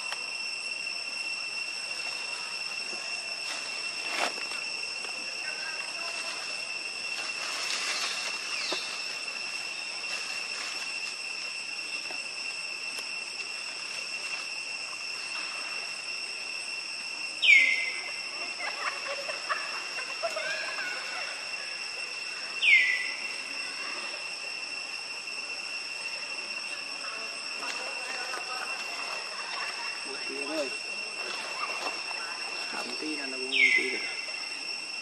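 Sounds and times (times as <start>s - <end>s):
high-pitched insect drone: 0.0s - 35.0s.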